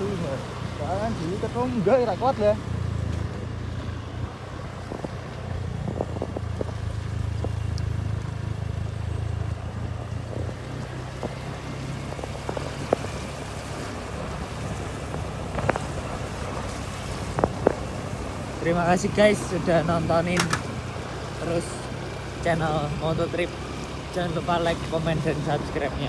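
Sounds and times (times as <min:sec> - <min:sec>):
motorcycle engine running: 0:00.0 - 0:26.0
road noise: 0:00.0 - 0:26.0
wind on microphone: 0:03.5 - 0:07.7, 0:10.2 - 0:18.3.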